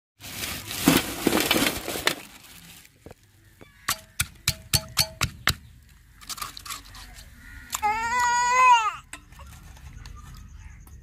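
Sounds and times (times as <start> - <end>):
pestle pounding in stone mortar: 3.9 - 5.7.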